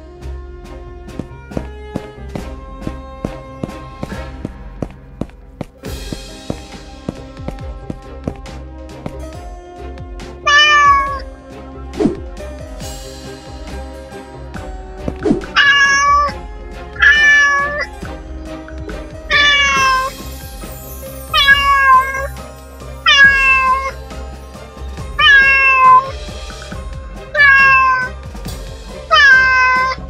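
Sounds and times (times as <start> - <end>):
quiet background music: 0.0 - 30.0
cat meowing: 10.5 - 11.2, 15.4 - 16.4, 17.0 - 17.9, 19.3 - 20.1, 21.3 - 22.3, 23.0 - 24.0, 25.2 - 26.1, 27.3 - 28.2, 29.1 - 30.0.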